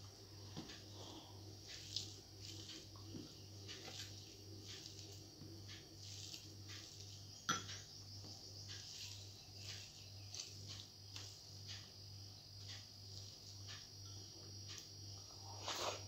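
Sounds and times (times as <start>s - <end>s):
fingers squishing and scraping food: 1.7s - 5.3s, 8.6s - 11.4s.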